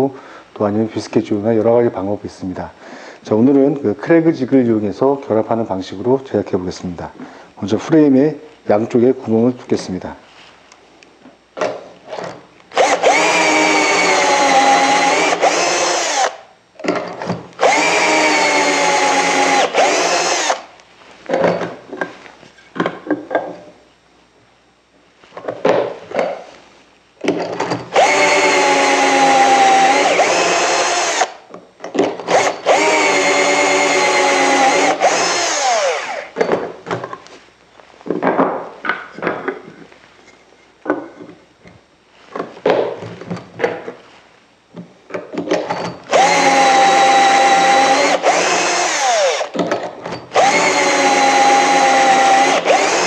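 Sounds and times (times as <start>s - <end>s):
cordless drill boring into wood: 12.7s - 16.4s, 17.6s - 20.7s, 27.9s - 31.4s, 32.3s - 36.4s, 46.1s - 49.6s, 50.3s - 53.0s.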